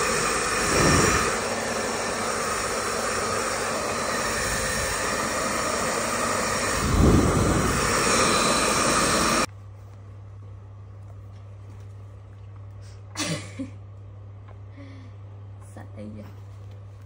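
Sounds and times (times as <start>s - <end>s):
blow dryer running: 0.0s - 9.5s.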